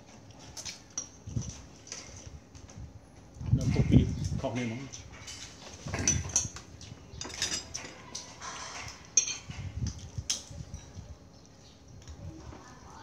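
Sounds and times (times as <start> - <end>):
spoons clinking on ceramic plates: 7.2 - 9.6.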